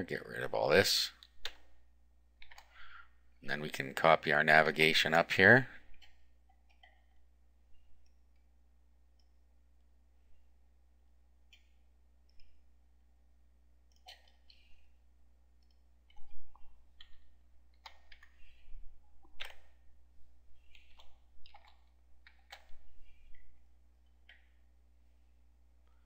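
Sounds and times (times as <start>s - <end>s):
low steady hum: 0.0s - 26.0s
mouse and keyboard clicks: 2.4s - 2.7s, 15.6s - 18.6s, 19.2s - 19.8s, 20.6s - 23.4s.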